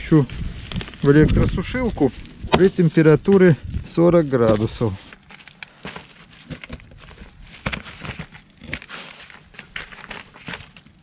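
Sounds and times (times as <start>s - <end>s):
plastic bag crinkling: 4.1s - 11.0s.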